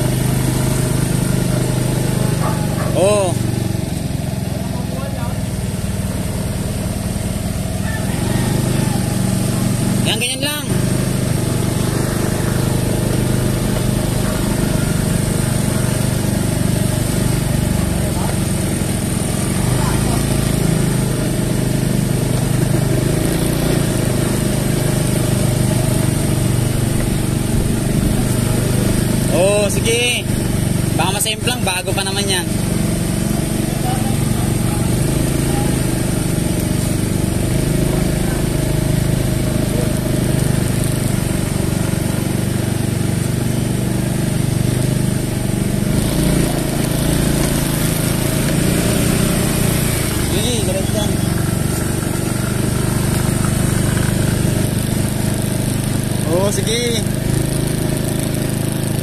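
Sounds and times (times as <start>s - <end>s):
motorcycle and scooter engines: 0.0s - 59.0s.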